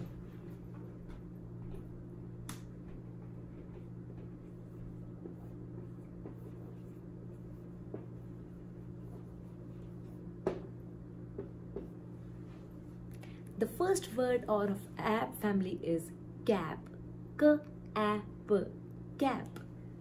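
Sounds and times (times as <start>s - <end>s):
low hum: 0.0s - 20.0s
marker writing on whiteboard: 3.8s - 10.6s
marker taps: 10.4s - 10.7s.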